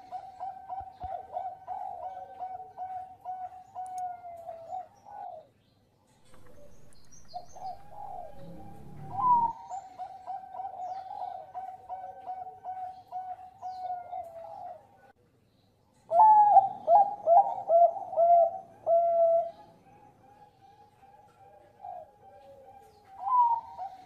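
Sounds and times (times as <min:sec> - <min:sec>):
dove cooing: 0:00.0 - 0:05.5, 0:06.2 - 0:14.9, 0:16.1 - 0:24.0
low noise: 0:06.1 - 0:09.8.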